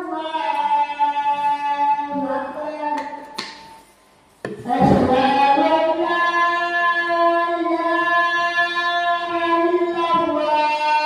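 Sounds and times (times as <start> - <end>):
person singing long notes: 4.6 - 11.0.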